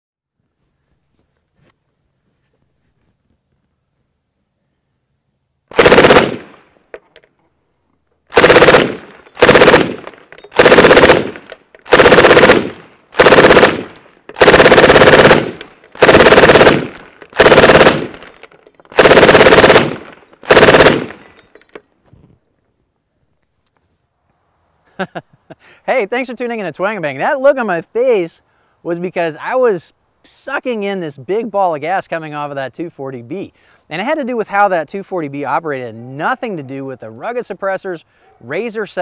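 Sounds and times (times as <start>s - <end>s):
suppressed machine gun bursts: 5.7s - 6.6s, 8.3s - 21.6s.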